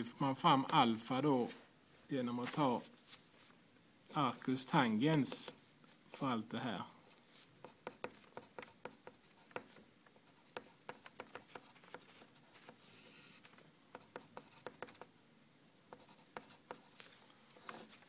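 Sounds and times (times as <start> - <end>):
pencil writing on paper: 7.6 - 15.1, 15.9 - 17.0.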